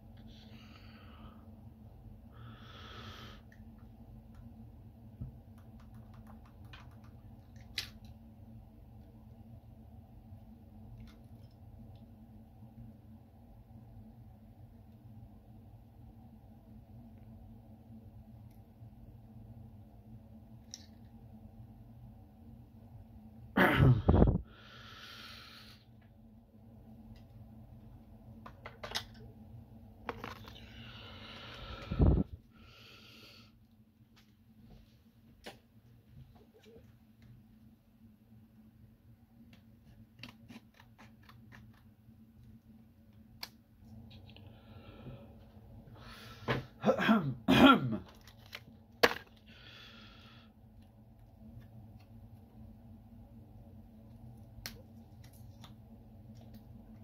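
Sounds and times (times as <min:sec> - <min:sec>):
steady low hum: 0:00.0 - 0:57.0
loud close breath-like sound: 0:24.1 - 0:25.9.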